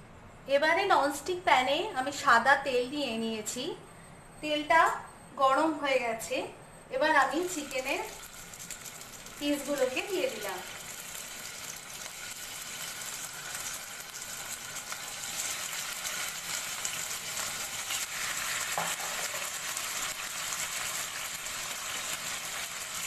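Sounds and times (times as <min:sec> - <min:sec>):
chicken sizzling in oil: 0:07.4 - 0:23.0.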